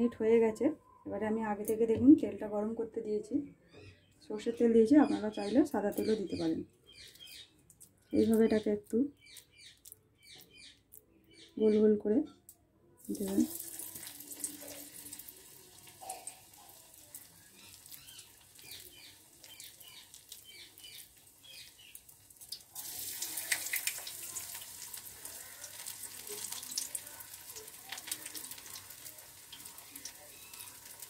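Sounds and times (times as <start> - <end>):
food sizzling in hot oil: 13.0 - 31.0.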